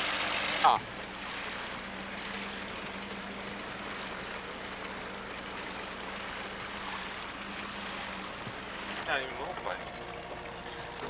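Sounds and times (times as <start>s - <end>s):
boat motor humming: 0.0s - 11.0s
wind and water hiss: 0.0s - 11.0s.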